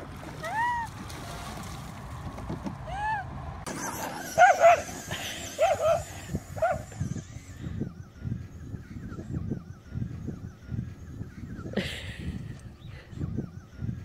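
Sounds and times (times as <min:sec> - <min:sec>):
low steady rumble: 0:00.0 - 0:14.0
dog whine: 0:02.9 - 0:07.4
dog barking: 0:04.3 - 0:04.9, 0:05.5 - 0:06.9.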